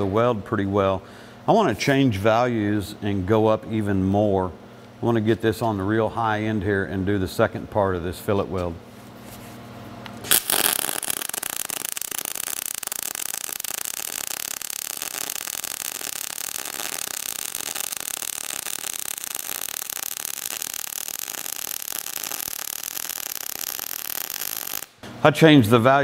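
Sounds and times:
welding arc crackling and hissing: 0:10.2 - 0:25.0.

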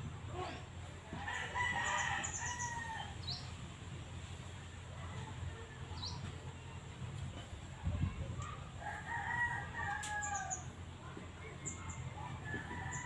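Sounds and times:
rooster crowing: 0:01.2 - 0:03.2, 0:08.8 - 0:10.6.

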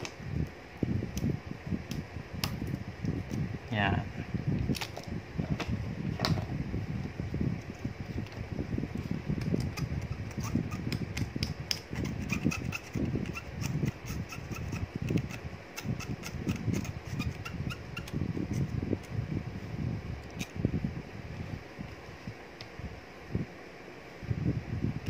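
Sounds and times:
tools scraping circuit board: 0:09.6 - 0:10.8, 0:11.9 - 0:18.6
small squeaks: 0:09.6 - 0:10.9, 0:12.0 - 0:18.6.

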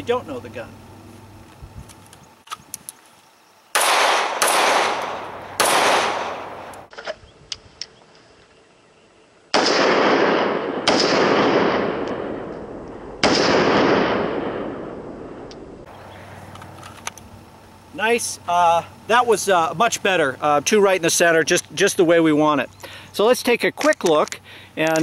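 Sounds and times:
pistol shots echoing: 0:03.8 - 0:06.8, 0:09.5 - 0:15.4.

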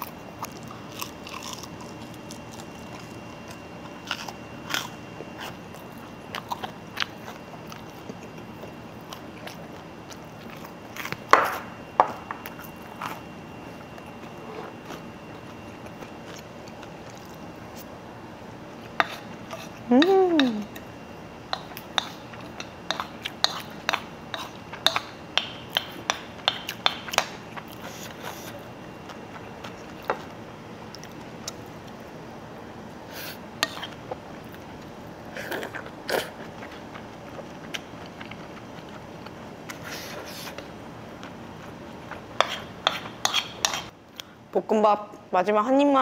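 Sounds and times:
soft chewing: 0:00.0 - 0:11.6, 0:12.3 - 0:18.0, 0:18.8 - 0:32.1, 0:33.1 - 0:44.4
steady background noise: 0:00.0 - 0:46.0
spoon scraping a bowl: 0:19.0 - 0:20.1, 0:21.6 - 0:25.0, 0:33.6 - 0:34.0, 0:42.4 - 0:43.9.

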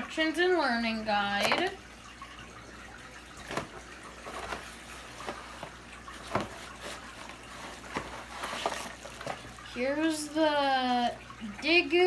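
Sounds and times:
cardboard box scraping and rustling: 0:04.3 - 0:09.5.

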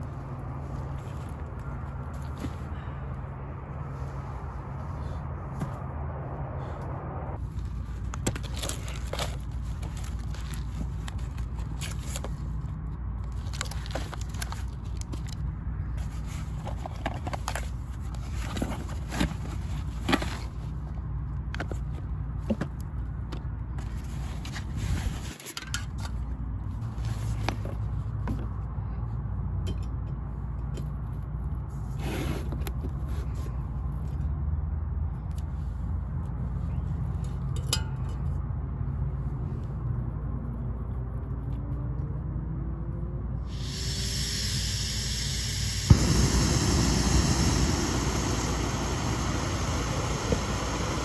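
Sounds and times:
low rumble: 0:00.0 - 0:07.7
camp gear clicking and scraping: 0:07.4 - 0:20.9, 0:21.5 - 0:28.6.

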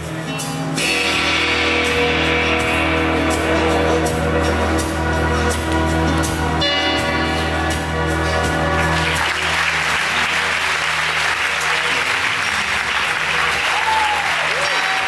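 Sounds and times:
music with sustained chords and bass: 0:00.0 - 0:15.0
audience applause: 0:08.3 - 0:15.0.

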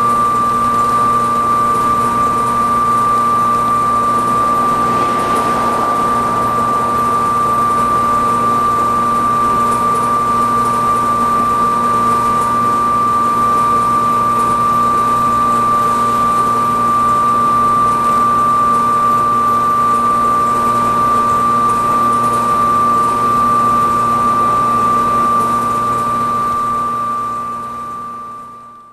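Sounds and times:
high-pitched electrical whine: 0:01.0 - 0:19.0, 0:19.8 - 0:28.2
low hum: 0:01.9 - 0:10.9
constant rush: 0:02.1 - 0:12.6, 0:21.8 - 0:27.2.

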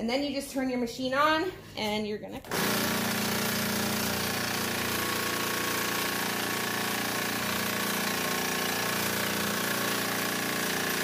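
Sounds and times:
scroll saw cutting wood: 0:02.5 - 0:11.0.

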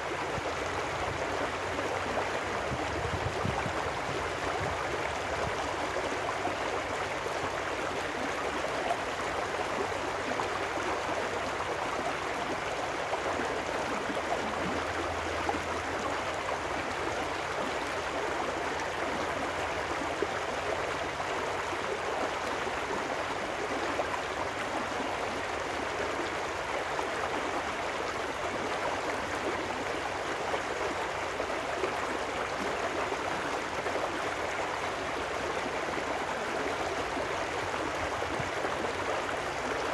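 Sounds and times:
stream rushing over rocks: 0:00.0 - 0:39.9.

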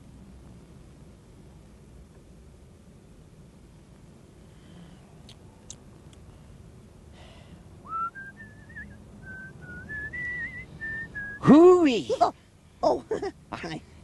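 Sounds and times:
person whistling a tune: 0:07.9 - 0:11.5.

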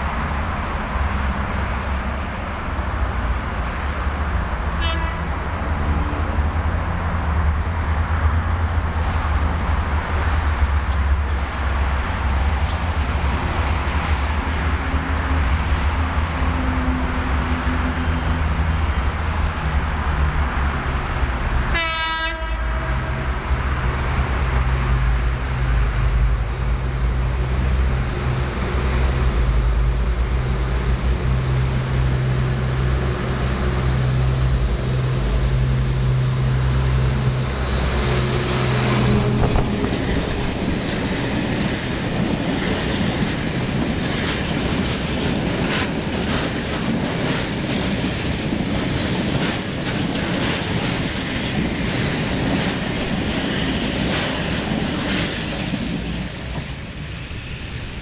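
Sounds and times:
diesel locomotive engine drone: 0:00.0 - 0:58.0
wheels clacking over rail joints: 0:37.2 - 0:57.1
freight wagons rumbling and rattling: 0:38.9 - 0:57.0.

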